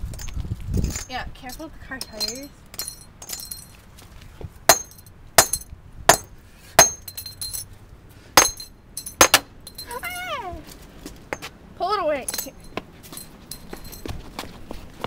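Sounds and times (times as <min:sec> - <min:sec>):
hammer blows on asphalt: 0:04.7 - 0:07.3, 0:08.4 - 0:09.6.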